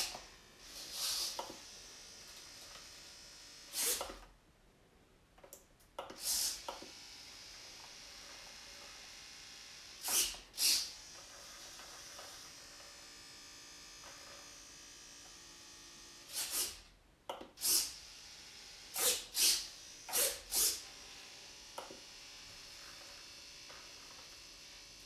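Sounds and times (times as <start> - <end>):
servos whirring: 0.0 - 1.7, 3.7 - 4.2, 10.0 - 11.1, 18.8 - 25.0.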